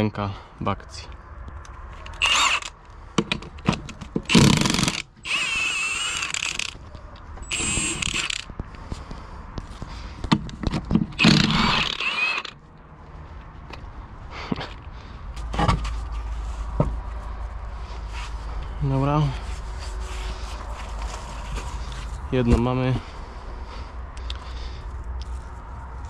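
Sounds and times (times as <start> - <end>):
impact wrench running: 2.1 - 2.8, 4.3 - 6.8, 7.4 - 8.5, 11.2 - 12.6.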